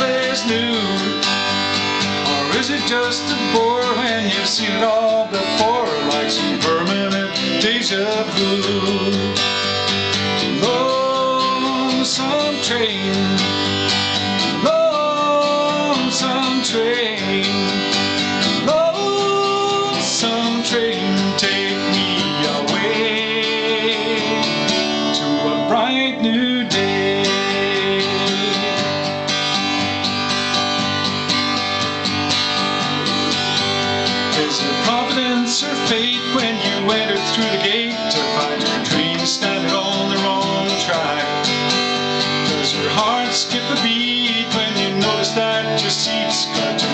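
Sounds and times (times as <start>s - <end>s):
acoustic guitar strummed and picked: 0.0s - 46.9s.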